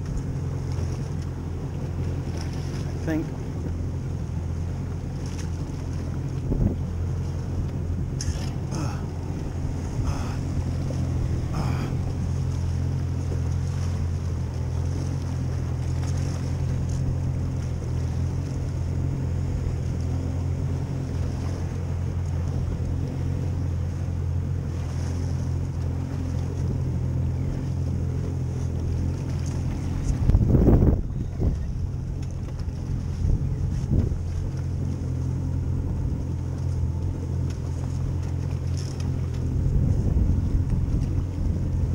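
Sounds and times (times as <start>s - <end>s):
outboard motor running: 0.0s - 41.9s
wind on microphone: 6.3s - 14.4s, 26.6s - 37.0s, 39.1s - 41.9s.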